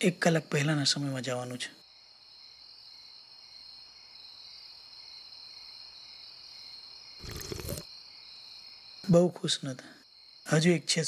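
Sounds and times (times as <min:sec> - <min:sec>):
crickets chirping: 0:00.2 - 0:11.0.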